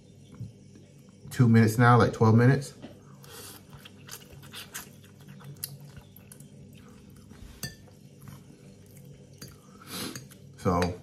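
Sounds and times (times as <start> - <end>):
soft chewing: 2.8 - 10.6.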